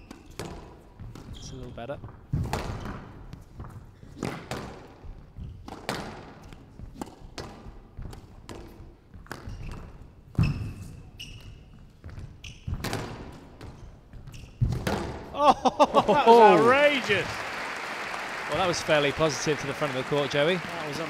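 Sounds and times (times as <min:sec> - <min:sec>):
shoes squeaking on floor: 0:00.0 - 0:04.2, 0:09.0 - 0:15.0
squash ball thwacks: 0:02.3 - 0:03.1, 0:05.6 - 0:09.5, 0:12.7 - 0:13.7.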